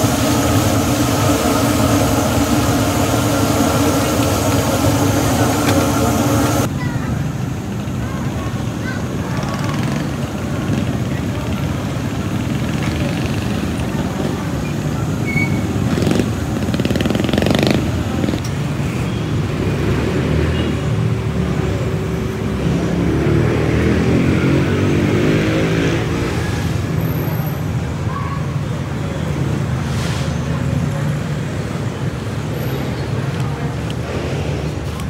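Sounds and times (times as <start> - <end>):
engine speeding up and pulling away: 0.0 - 6.7, 19.5 - 27.4
motorcycle engines running: 7.6 - 28.1.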